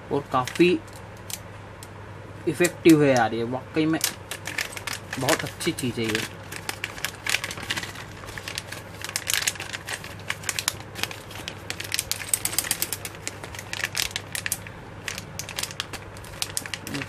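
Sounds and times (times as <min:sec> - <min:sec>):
plastic pouch crinkling: 0:04.0 - 0:17.0.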